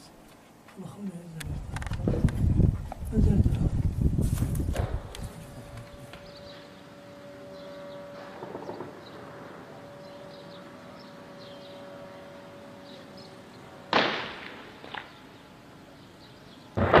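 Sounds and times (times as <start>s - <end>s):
faint steady hum: 0.0s - 17.0s
distant gunshot echoing: 8.2s - 9.3s, 13.9s - 15.2s, 16.8s - 17.0s
faint gunshot crack: 13.9s - 15.1s.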